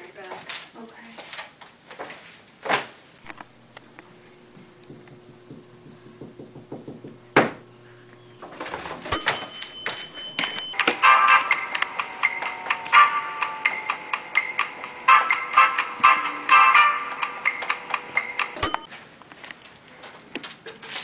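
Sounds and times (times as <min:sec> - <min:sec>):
bell-like chime: 0:09.1 - 0:10.8, 0:18.6 - 0:18.9
music: 0:10.8 - 0:18.9.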